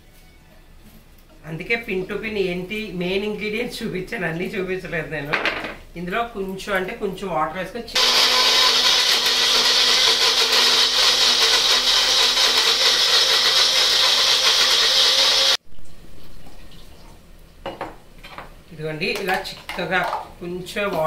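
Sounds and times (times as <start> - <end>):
mixer grinder running: 8.0 - 15.6.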